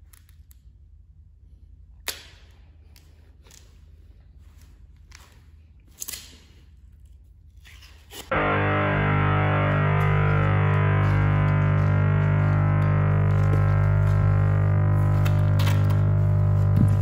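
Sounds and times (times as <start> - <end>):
distorted electric guitar music: 8.3 - 17.0.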